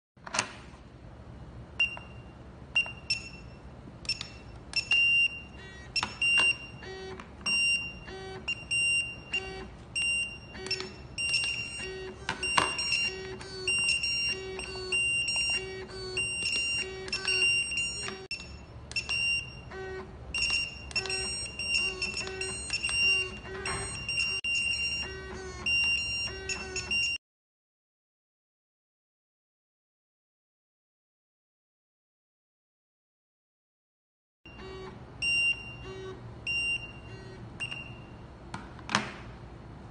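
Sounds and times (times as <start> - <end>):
high electronic pager beeps: 1.8 - 27.2, 34.5 - 38.2.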